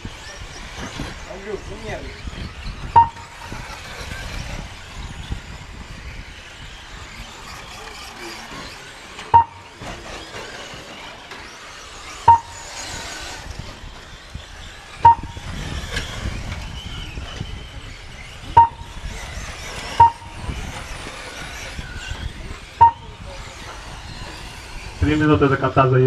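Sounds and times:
model trucks running on dirt: 0.0s - 26.0s
loud timing beeps: 2.9s - 3.5s, 9.3s - 9.8s, 12.2s - 12.9s, 15.0s - 15.5s, 18.5s - 19.0s, 19.8s - 20.5s, 22.7s - 23.2s.

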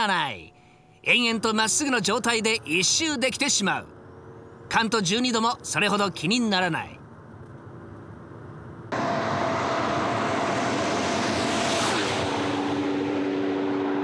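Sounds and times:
car engine passing at speed: 8.9s - 14.0s.

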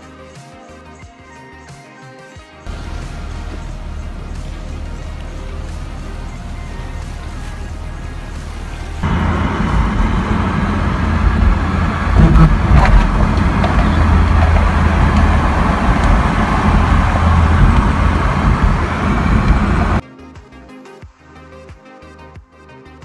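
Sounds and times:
music: 0.0s - 9.1s, 13.6s - 23.0s
car interior driving noise: 2.7s - 20.0s.

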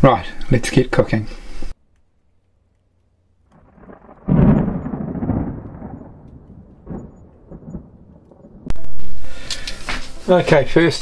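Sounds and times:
deep explosion boom rumbling: 3.6s - 9.2s.

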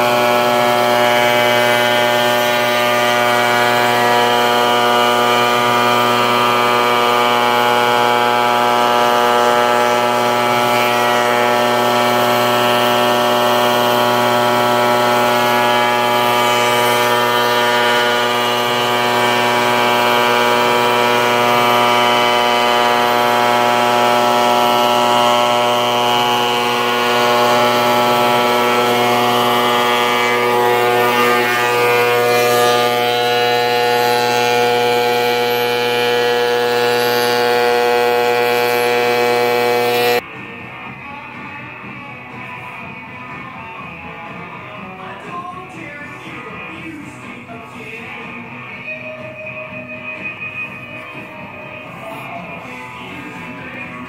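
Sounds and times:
molder machine whining: 0.0s - 54.0s.

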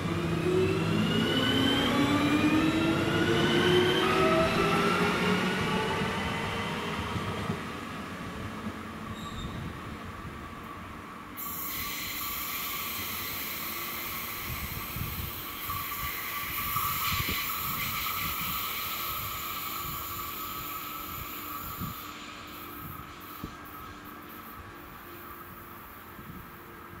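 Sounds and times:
train rolling rumble: 0.0s - 27.0s
train wheels squealing: 9.1s - 9.7s, 11.4s - 24.0s.

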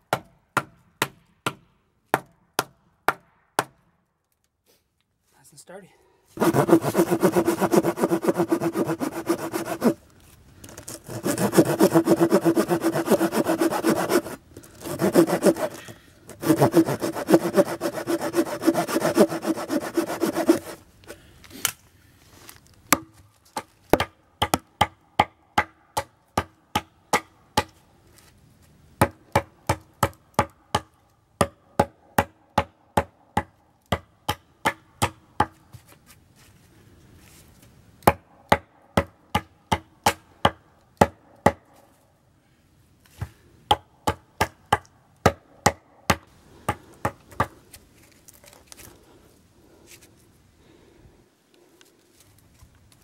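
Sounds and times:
hand saw cutting log: 6.4s - 10.0s, 10.7s - 20.8s
hatchet blows on wood: 6.4s - 10.0s, 10.6s - 20.8s.

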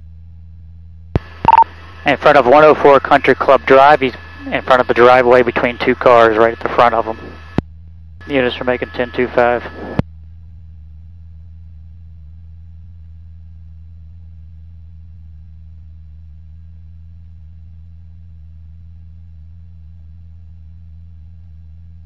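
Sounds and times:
low hum on intercom: 1.2s - 7.6s, 8.2s - 10.0s.

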